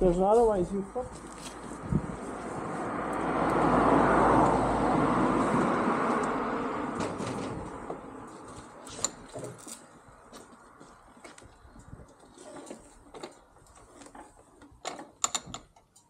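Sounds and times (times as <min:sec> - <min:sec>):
vehicle passing: 0:00.6 - 0:08.9.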